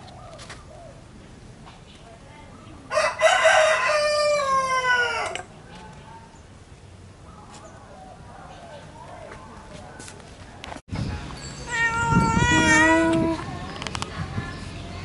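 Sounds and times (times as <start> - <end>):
rooster crowing: 2.9 - 5.5.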